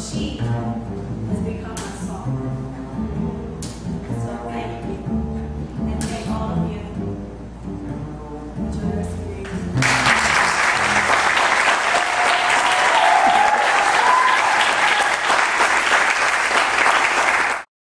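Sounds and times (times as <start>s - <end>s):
double bass plucked notes: 0.0s - 11.4s
audience applause: 9.8s - 17.7s
drawn-out cheer: 10.4s - 15.6s.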